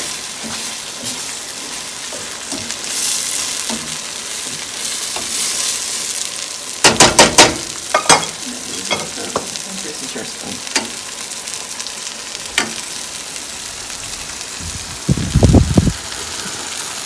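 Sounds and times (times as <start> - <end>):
onions sizzling in a skillet: 0.0 - 17.0
tongs clacking against pan: 6.8 - 9.6, 10.4 - 11.0
metal tongs stirring: 6.9 - 11.0.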